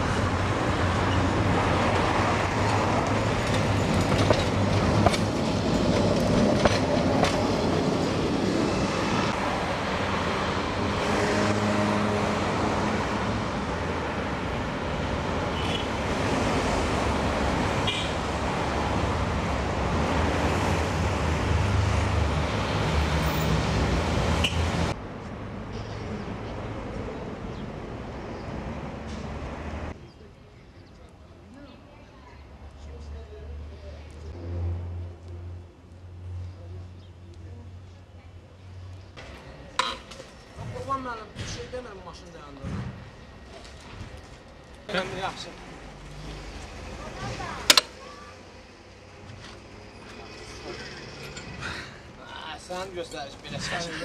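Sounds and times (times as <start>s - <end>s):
tram wheels and motors rumbling: 0.0s - 17.6s, 37.2s - 53.6s
rail clicks and knocks: 2.6s - 7.7s.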